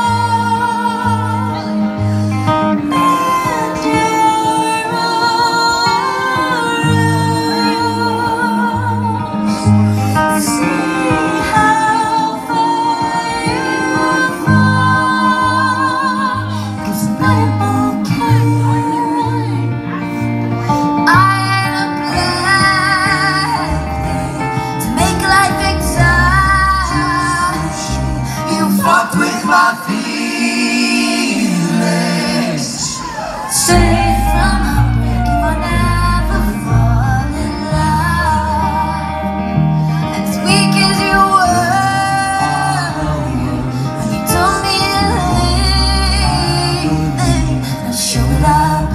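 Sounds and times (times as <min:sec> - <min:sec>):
woman singing slow melody: 0:00.0 - 0:31.3, 0:33.0 - 0:48.9
acoustic guitar: 0:00.0 - 0:48.9
low bass notes: 0:13.3 - 0:28.8, 0:32.3 - 0:48.9.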